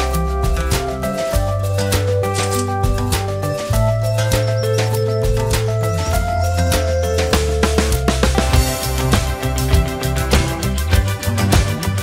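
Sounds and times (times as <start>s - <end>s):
background music with steady beat: 0.0s - 12.0s.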